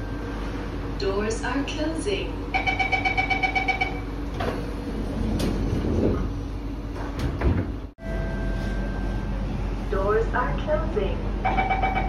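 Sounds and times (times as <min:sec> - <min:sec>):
train rumble: 0:00.0 - 0:12.0
train doors closing: 0:02.6 - 0:09.3.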